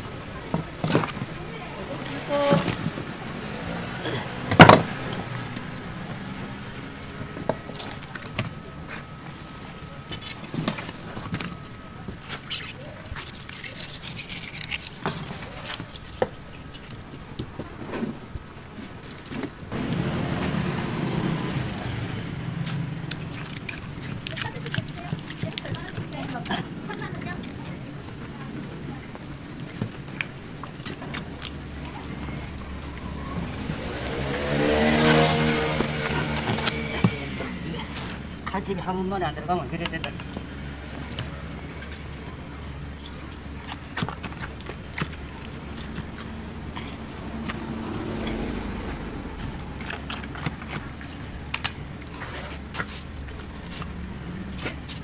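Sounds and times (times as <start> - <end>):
background noise: 0.0 - 55.0
knife clicks and scrapes: 12.3 - 17.1, 22.6 - 28.2
vehicle engine running: 19.7 - 23.2.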